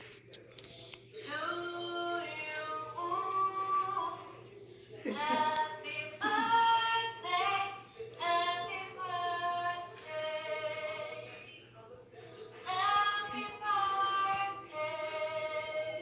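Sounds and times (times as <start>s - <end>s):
voices singing unaccompanied: 5.0s - 11.6s, 12.6s - 16.0s.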